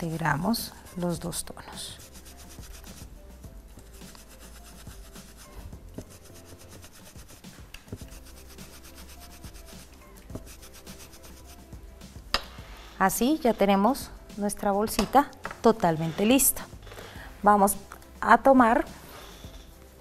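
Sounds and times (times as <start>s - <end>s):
faint background music: 0.0s - 20.0s
brush scrubbing on burlap: 1.7s - 11.7s.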